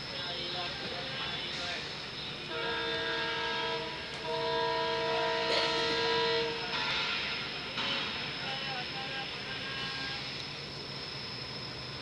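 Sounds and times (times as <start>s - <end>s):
train coaches running: 0.0s - 12.0s
locomotive horn blasts: 2.4s - 7.2s.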